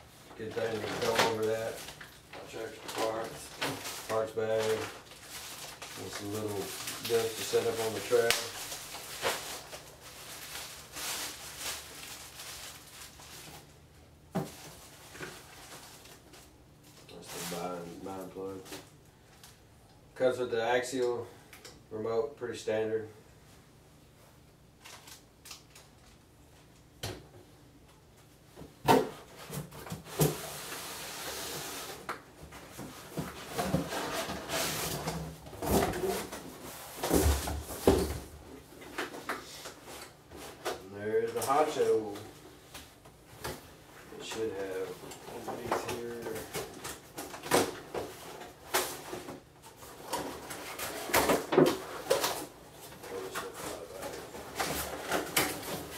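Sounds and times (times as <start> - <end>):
plastic bag crinkling: 0.4 - 13.7.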